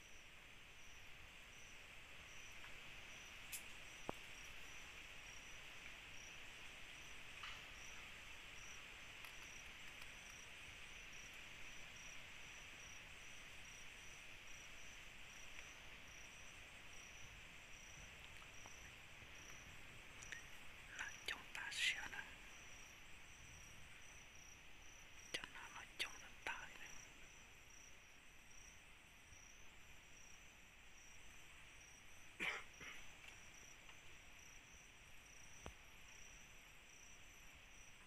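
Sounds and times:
cricket chirping: 0.0 - 38.0
hiss of insects: 0.0 - 38.0
faint ticks: 2.5 - 4.7, 5.3 - 6.0, 7.2 - 12.2, 15.4 - 15.8, 17.8 - 22.9, 23.9 - 27.9, 33.0 - 34.6, 35.3 - 36.3.

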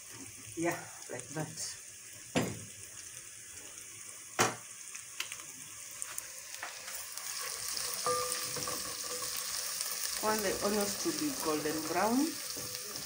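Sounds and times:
onions sizzling in oil: 0.0 - 13.0
wooden spoon stirring: 10.2 - 13.0.

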